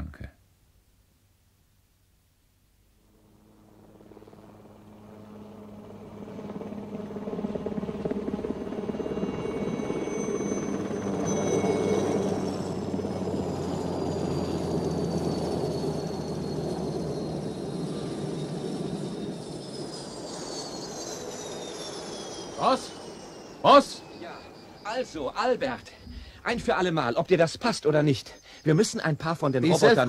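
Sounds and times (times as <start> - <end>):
thin high tones: 8.8 - 30.0.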